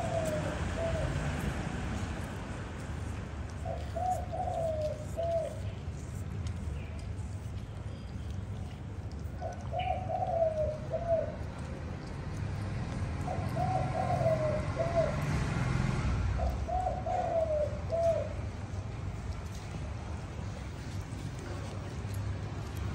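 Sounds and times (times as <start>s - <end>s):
dove cooing: 0.0s - 1.5s, 3.6s - 5.6s, 9.4s - 11.5s, 13.2s - 15.4s, 16.4s - 18.4s.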